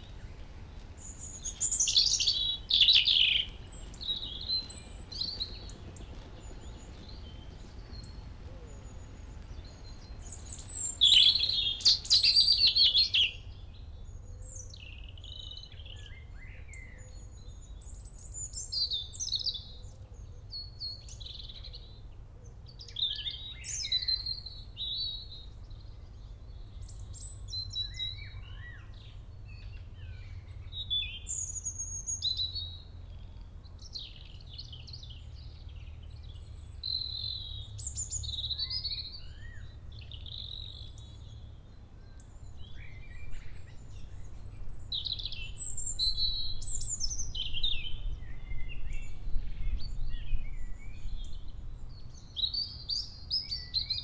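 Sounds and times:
low background rumble: 0:00.0 - 0:15.9
songbirds singing: 0:00.0 - 0:54.0.

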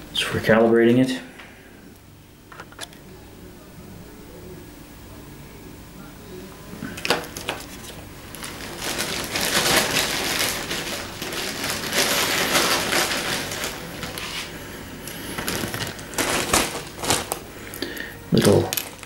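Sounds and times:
plastic packaging crinkling: 0:06.9 - 0:19.0.

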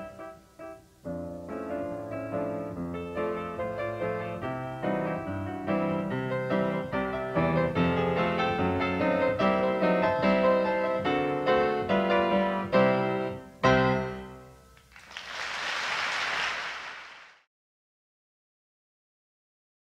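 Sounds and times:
piano music: 0:00.0 - 0:14.8.

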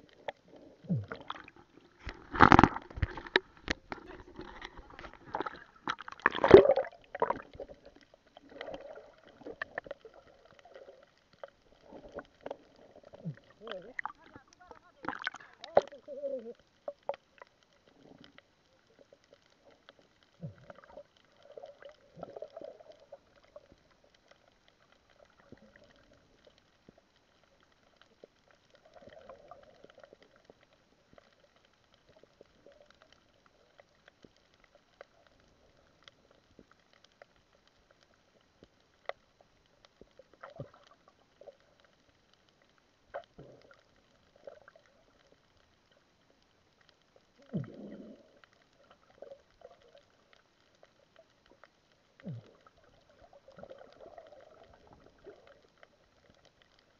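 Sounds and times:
muffled underwater gurgling: 0:00.0 - 0:26.6, 0:47.3 - 0:50.4, 0:51.4 - 0:56.9.

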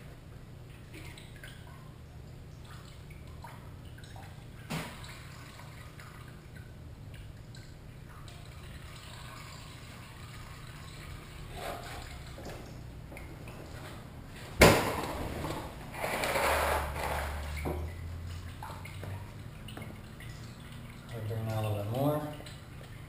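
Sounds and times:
liquid trickling into a pan: 0:00.8 - 0:14.0.

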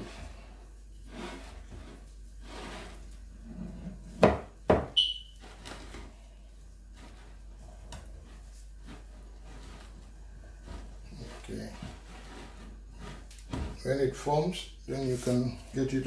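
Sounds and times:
dough squelching: 0:05.0 - 0:14.0.

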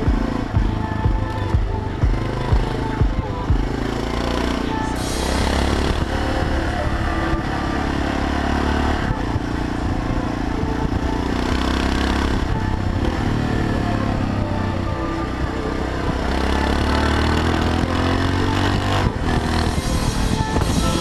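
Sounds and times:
motorcycle engine running: 0:00.0 - 0:21.0
wind noise on microphone: 0:08.9 - 0:16.8, 0:17.4 - 0:21.0.

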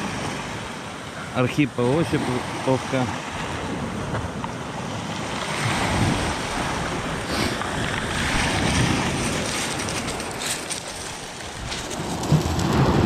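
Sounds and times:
waves washing onto shore: 0:00.0 - 0:13.0
wind on microphone: 0:03.3 - 0:13.0.

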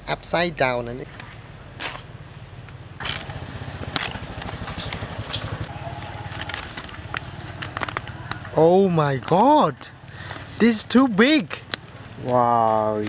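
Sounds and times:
low pulsing engine rumble: 0:01.0 - 0:10.6
banana leaf crackling: 0:03.0 - 0:13.0.

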